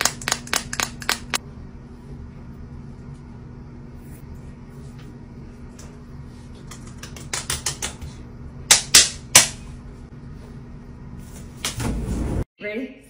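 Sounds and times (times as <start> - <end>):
hands patting skin: 0.0 - 1.4
steady low hum: 0.0 - 12.5.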